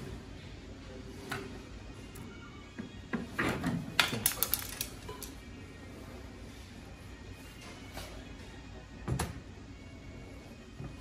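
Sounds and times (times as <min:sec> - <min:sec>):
metal bracket clicking and rattling: 0:04.0 - 0:05.3.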